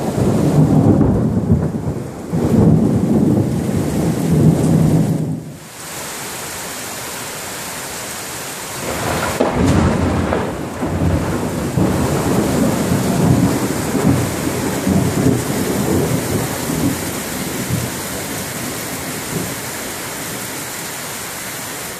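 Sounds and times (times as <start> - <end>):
thunder rumbling: 0.0 - 5.6, 8.8 - 19.6
heavy rain falling: 0.0 - 21.9.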